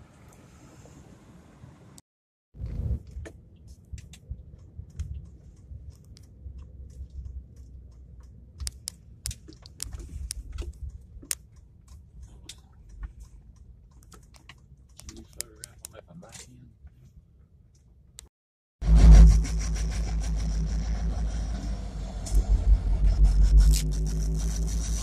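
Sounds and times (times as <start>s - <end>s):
diesel locomotives rumbling: 18.8s - 25.0s.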